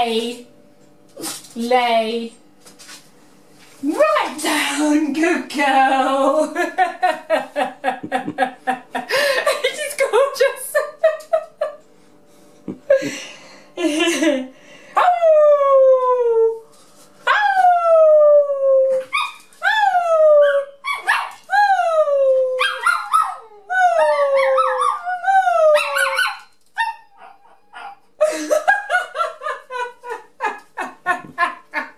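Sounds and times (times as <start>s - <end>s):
puppy howling: 17.3s - 28.1s
puppy yipping: 19.1s - 19.5s, 20.4s - 21.4s, 22.6s - 23.5s, 24.1s - 25.1s, 25.7s - 28.0s.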